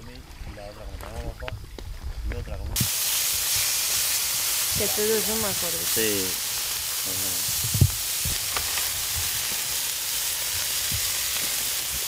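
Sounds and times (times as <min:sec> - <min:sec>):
chicken sizzling in a frying pan: 0:02.8 - 0:12.0.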